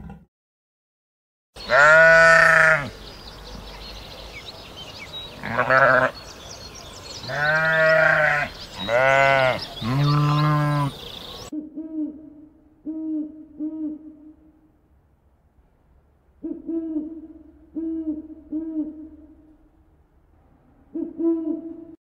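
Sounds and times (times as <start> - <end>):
sheep bleating: 1.6 - 3.0, 5.4 - 6.2, 7.2 - 11.1
owl hooting: 16.4 - 19.6, 20.9 - 22.0.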